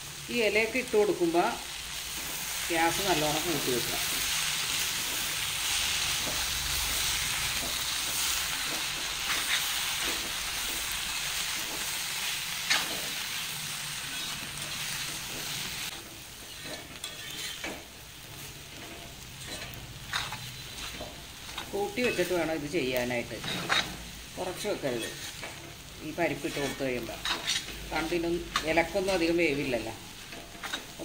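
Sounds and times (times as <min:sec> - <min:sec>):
food sizzling in a pan: 0:00.0 - 0:31.0
metal spoon scraping pan: 0:14.0 - 0:17.9, 0:18.7 - 0:22.5, 0:23.3 - 0:31.0.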